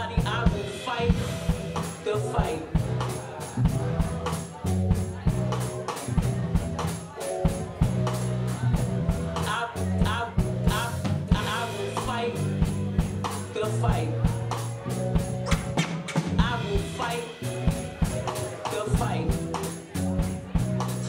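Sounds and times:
person singing: 0.0s - 6.4s, 7.1s - 21.0s
drum kit beat: 0.0s - 21.0s
electric bass notes: 0.0s - 21.0s
keyboards: 0.0s - 21.0s.

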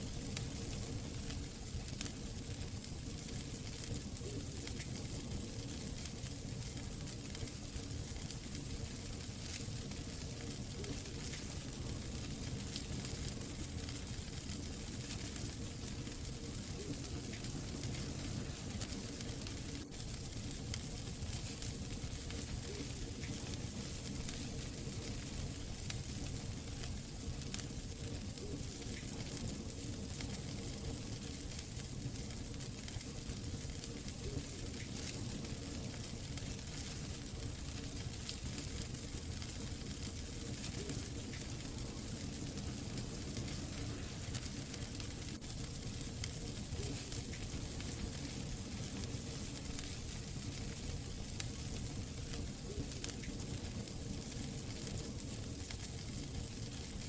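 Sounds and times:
fire crackles and pops: 0.0s - 57.0s
wood fire hissing and rumbling: 0.0s - 57.0s.

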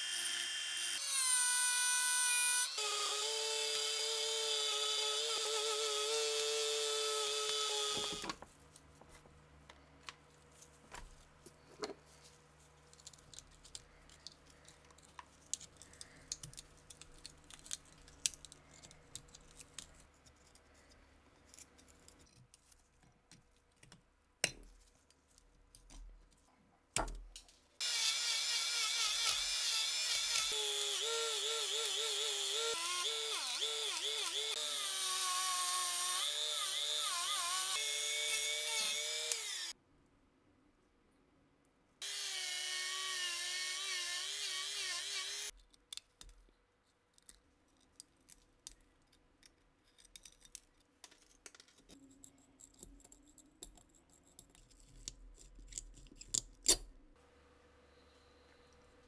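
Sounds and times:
rotary tool grinding whine: 0.0s - 8.3s, 27.8s - 39.8s, 42.0s - 45.5s.

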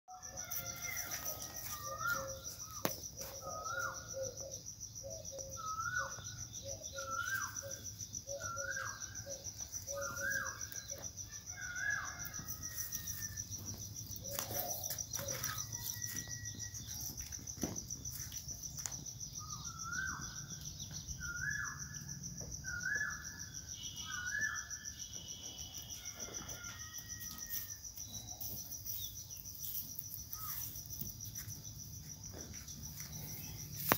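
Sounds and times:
crickets trilling: 0.1s - 33.9s.

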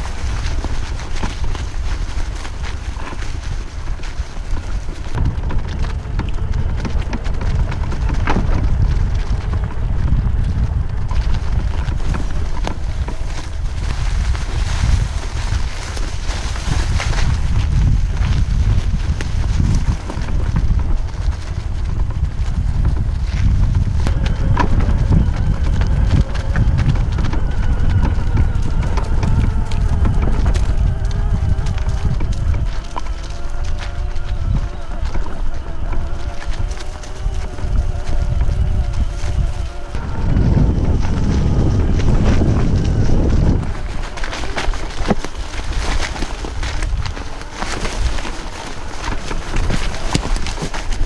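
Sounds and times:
low riding rumble: 0.0s - 51.0s
wind buffeting microphone: 0.0s - 51.0s.

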